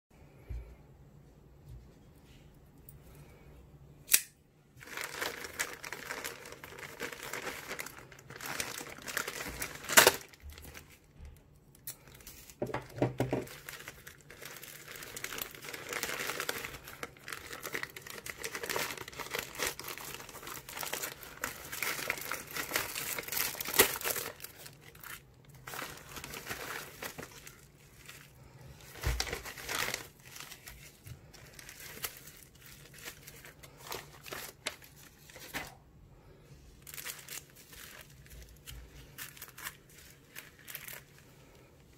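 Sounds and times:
bubble wrap packets handled: 4.7s - 41.9s
plastic mailer bag crinkling and tearing: 4.8s - 35.8s, 36.8s - 41.9s.

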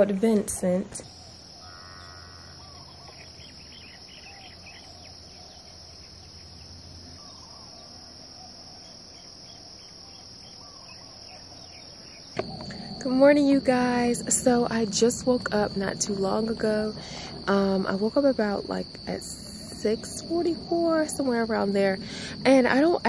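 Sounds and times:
insects trilling: 0.0s - 23.0s
bird chirps: 1.0s - 13.1s.

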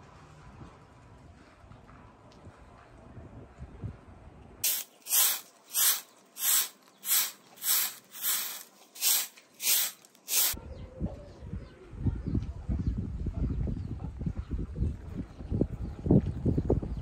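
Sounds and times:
straw broom sweeping concrete: 4.6s - 10.6s.

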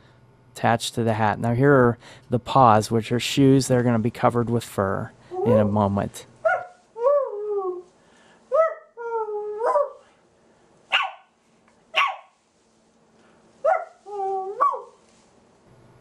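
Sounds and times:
man imitating puppy yelps: 6.4s - 7.9s, 8.5s - 10.0s, 10.9s - 11.2s, 12.0s - 12.3s, 13.7s - 15.0s.

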